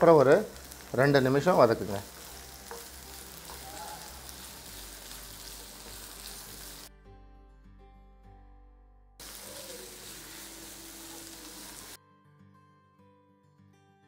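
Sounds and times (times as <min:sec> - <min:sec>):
vegetables sizzling in hot oil: 0:00.0 - 0:06.9, 0:09.2 - 0:12.0
soft background music: 0:00.0 - 0:14.0.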